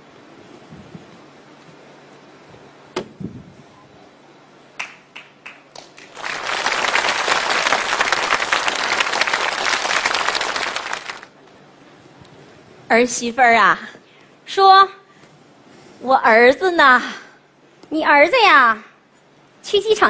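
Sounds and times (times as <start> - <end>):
audience applauding: 4.8 - 11.4.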